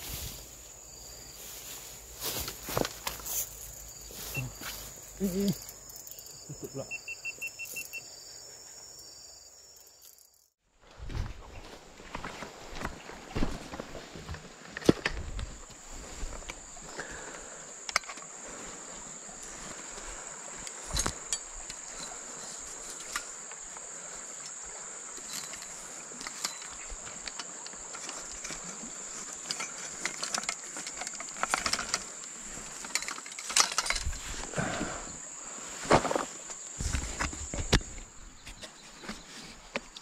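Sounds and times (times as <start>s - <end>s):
high-pitched insect chorus: 0.0s - 10.6s, 15.4s - 39.2s
clicks and rustling: 25.2s - 34.2s.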